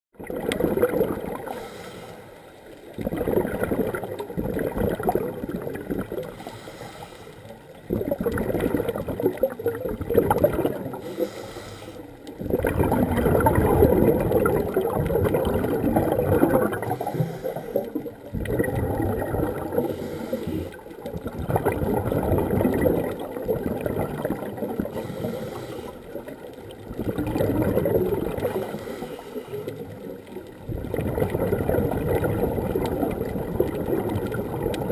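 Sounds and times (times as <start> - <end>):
underwater exhaled air bubbling: 0.2 - 34.9
diver's regulator inhalations: 1.1 - 2.6, 4.6 - 9.0, 10.4 - 21.1, 24.3 - 26.5, 28.3 - 30.3.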